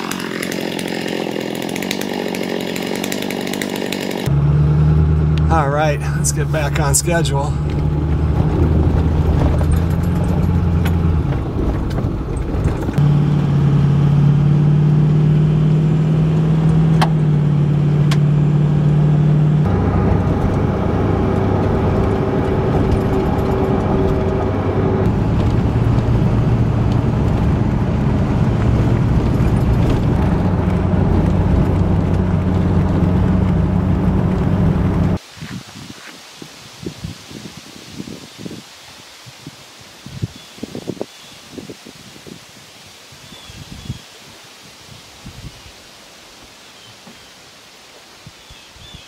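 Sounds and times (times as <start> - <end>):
vehicle engine drone: 0.0 - 35.2
road noise: 4.0 - 38.8.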